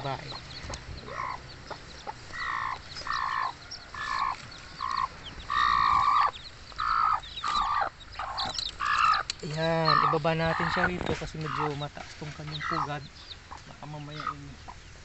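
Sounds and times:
chicks peeping: 0.0 - 15.0
hen giving short calls: 2.3 - 11.8, 12.4 - 14.8.

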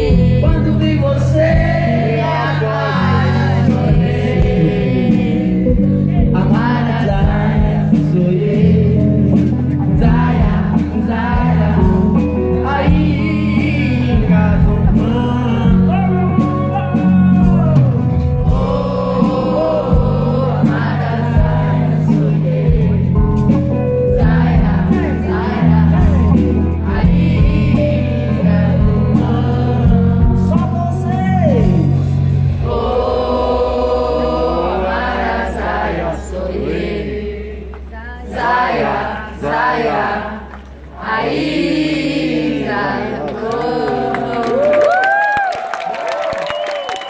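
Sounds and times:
man singing into microphone: 0.0 - 5.4, 6.1 - 11.6, 12.6 - 17.9
keyboard: 0.0 - 37.8.

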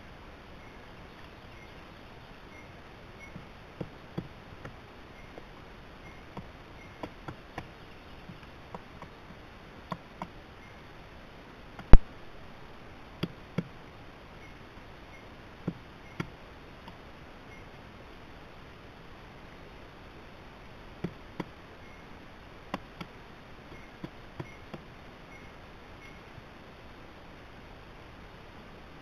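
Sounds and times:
woodpecker pecking at log: 3.2 - 5.6, 6.2 - 10.4, 21.0 - 21.6, 22.6 - 23.2, 23.9 - 24.9.

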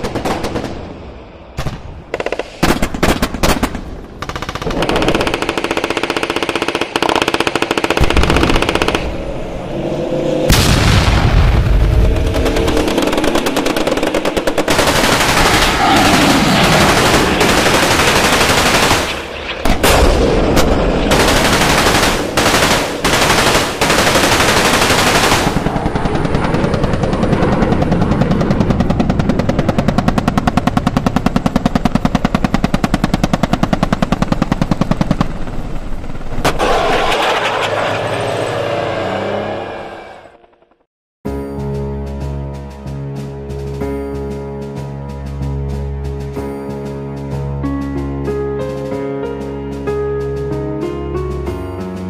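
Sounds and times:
blank machine-gun fire: 12.5 - 25.7.

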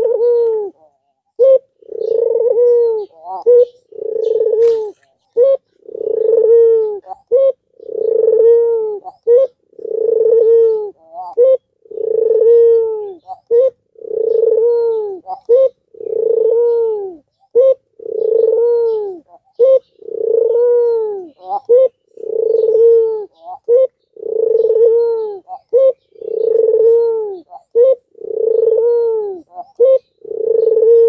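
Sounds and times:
dove cooing: 0.0 - 31.0.

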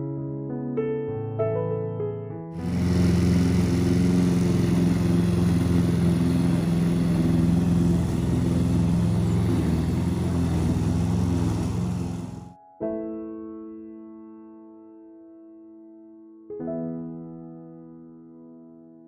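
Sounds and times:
engine droning steadily: 2.6 - 12.6.

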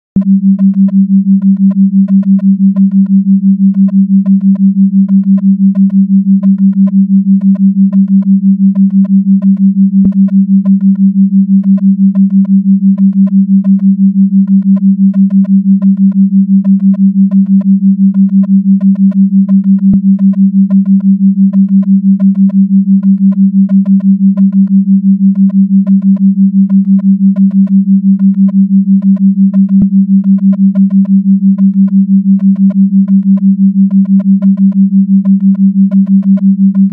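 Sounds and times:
pulsing electronic sine tone: 0.2 - 36.9.

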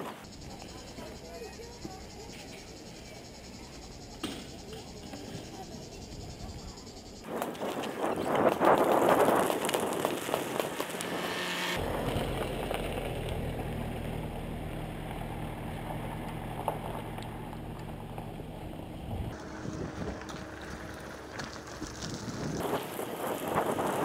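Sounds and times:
wind rushing on microphone: 6.2 - 11.8, 19.0 - 20.5, 21.9 - 24.0
low motor hum: 10.2 - 22.6.

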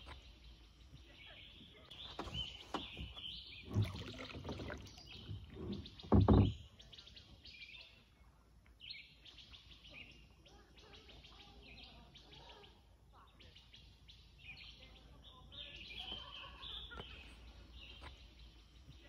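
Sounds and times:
songbirds chirping and singing: 0.0 - 19.0
low bumps and rumbles: 2.2 - 6.7.

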